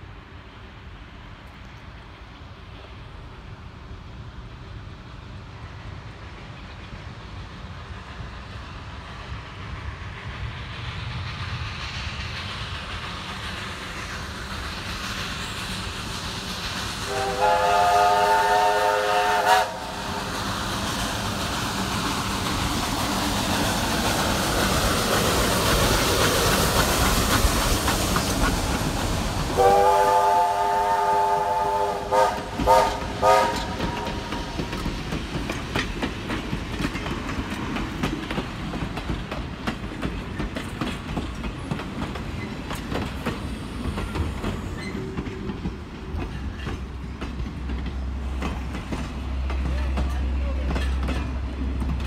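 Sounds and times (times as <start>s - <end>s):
steam locomotive running: 0.0s - 52.0s
steam whistle: 17.1s - 20.2s, 29.6s - 34.5s.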